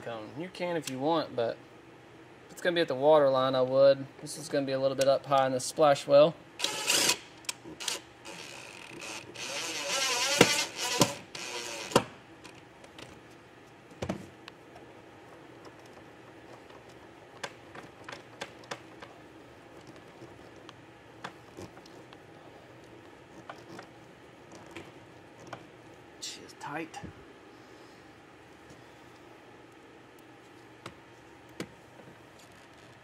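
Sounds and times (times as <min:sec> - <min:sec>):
cordless drill running: 0:06.6 - 0:07.2, 0:07.8 - 0:12.0
hoses and cables handled: 0:07.4 - 0:26.1, 0:28.6 - 0:33.0.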